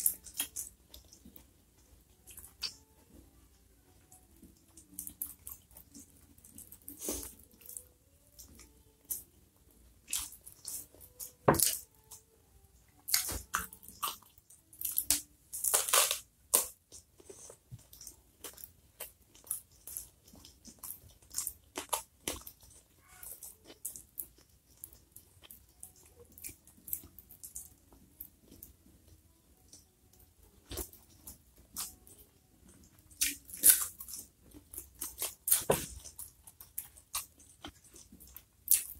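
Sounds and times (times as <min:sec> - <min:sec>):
chewing and mouth sounds: 0:10.0 - 0:11.8, 0:13.0 - 0:28.8, 0:30.6 - 0:38.9.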